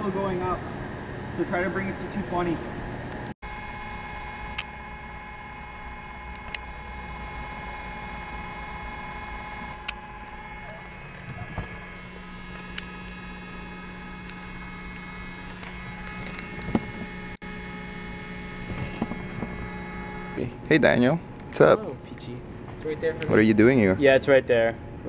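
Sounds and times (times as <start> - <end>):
high whining tones: 0.0 - 22.0
lower hum: 0.0 - 22.6
machine and electrical hum: 0.0 - 25.0
sharp clicks: 6.3 - 6.7, 9.7 - 10.3, 12.5 - 17.2.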